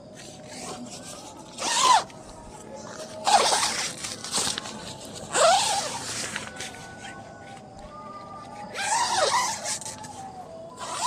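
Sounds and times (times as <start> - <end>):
tent zipper zipping: 1.6 - 2.0, 3.2 - 3.8, 5.3 - 6.0, 8.8 - 9.6, 10.8 - 11.0.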